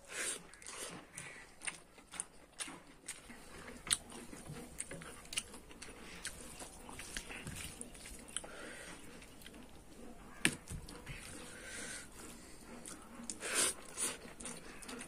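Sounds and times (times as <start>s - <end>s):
open-mouthed chewing: 0.0s - 15.0s
fingers squelching food: 0.3s - 15.0s.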